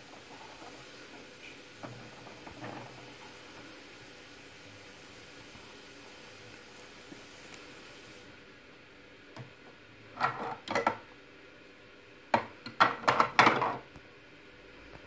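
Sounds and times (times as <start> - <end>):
plastic toys knocking and clattering: 12.4 - 13.8.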